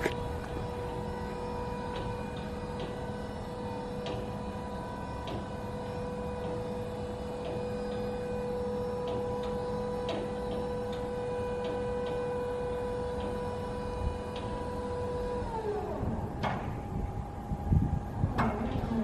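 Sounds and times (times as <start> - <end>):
hydraulic pump motor whining: 0.0 - 19.0.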